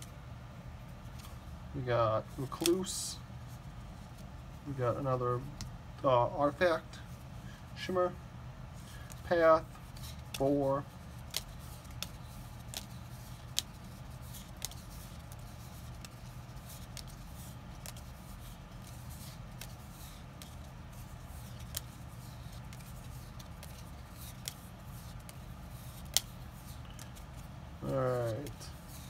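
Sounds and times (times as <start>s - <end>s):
cards flipped and dropped: 9.8s - 29.0s.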